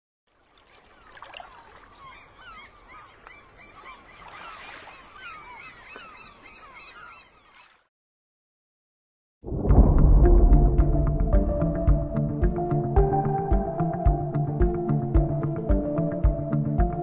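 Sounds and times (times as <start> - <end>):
flock of birds calling: 1.0 - 7.8.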